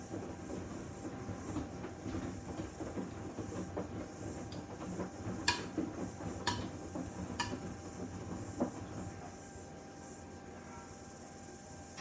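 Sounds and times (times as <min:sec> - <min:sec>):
washing machine drum churning: 0:00.0 - 0:10.0.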